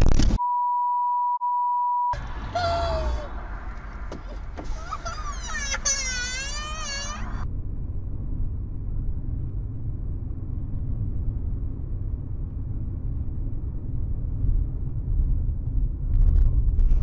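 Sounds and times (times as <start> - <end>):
car road and engine rumble: 2.2 - 17.0
sharp knocks: 3.9 - 4.8.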